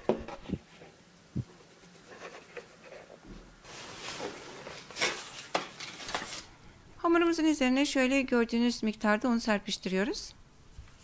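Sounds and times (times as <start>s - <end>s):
rustling scrapes: 0.3s - 6.5s.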